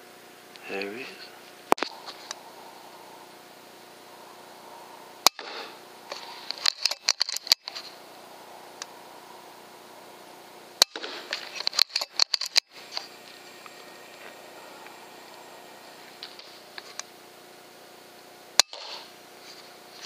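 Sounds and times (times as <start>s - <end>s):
air rifle shot crack: 5.2s - 5.8s.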